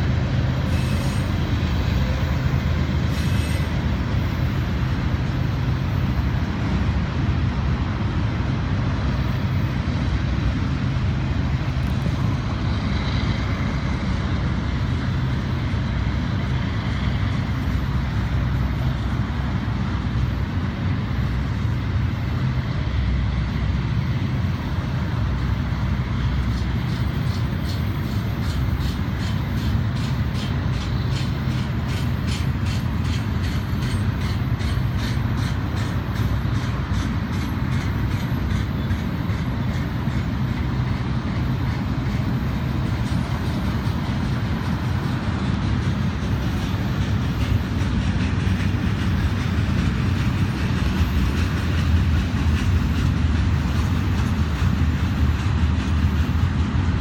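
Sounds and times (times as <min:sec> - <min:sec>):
train wheels on rail: 0:00.0 - 0:57.0
wheels clicking over rail joints: 0:25.8 - 0:57.0.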